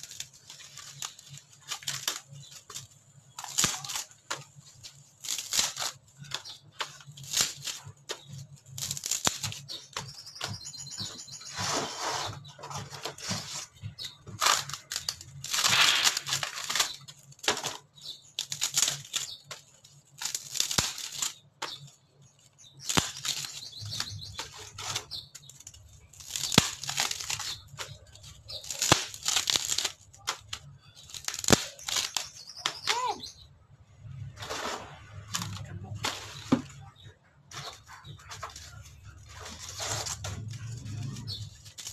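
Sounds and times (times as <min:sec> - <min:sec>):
dry wood boards tearing apart: 0:00.0 - 0:10.6, 0:11.6 - 0:21.9, 0:22.6 - 0:33.1, 0:37.5 - 0:41.9.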